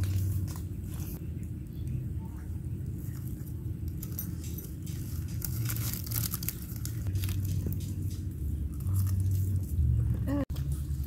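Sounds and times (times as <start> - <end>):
rice paper crinkling and crackling: 3.0 - 9.8.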